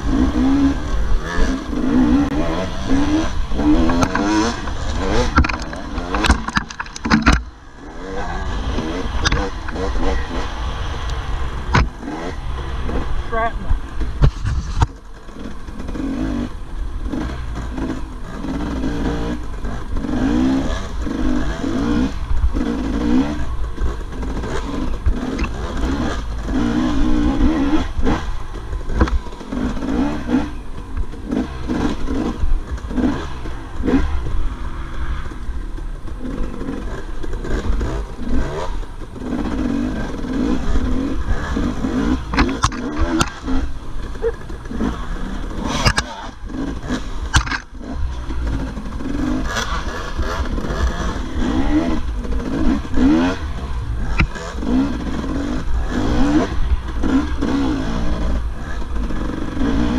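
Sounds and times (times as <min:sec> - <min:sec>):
dirt bike engine revving: 0:00.0 - 0:59.9
bike clattering over bumps: 0:00.4 - 0:07.6, 0:19.4 - 0:59.9.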